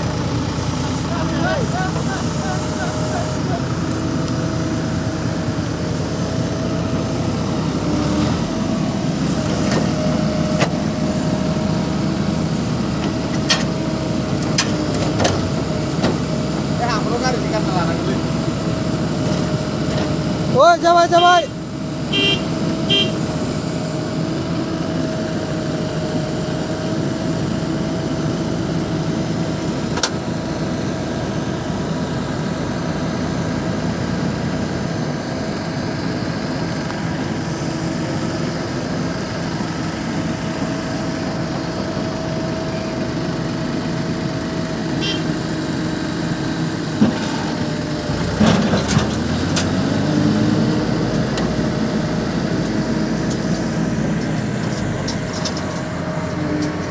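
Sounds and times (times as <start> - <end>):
diesel engines running: 0.0 - 56.9
engine whine: 0.0 - 56.9
engine revving up: 48.2 - 54.6.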